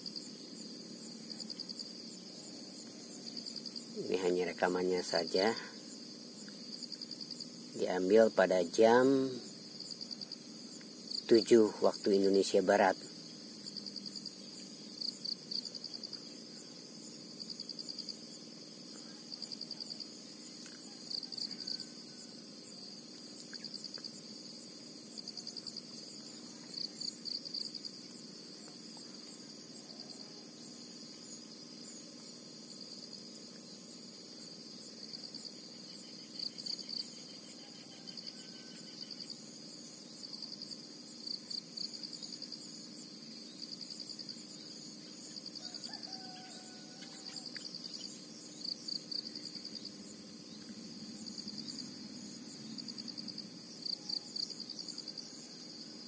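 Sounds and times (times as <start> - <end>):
insects trilling: 0.0 - 56.0
pulsing insect chirps: 0.0 - 56.0.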